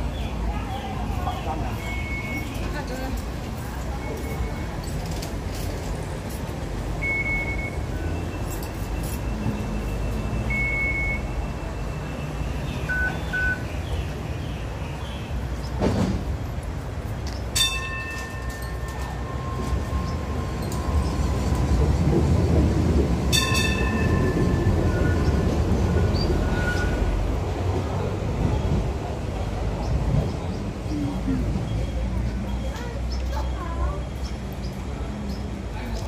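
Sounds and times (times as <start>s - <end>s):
short electronic beeps: 7.0s - 13.7s
train rumble: 15.3s - 36.0s.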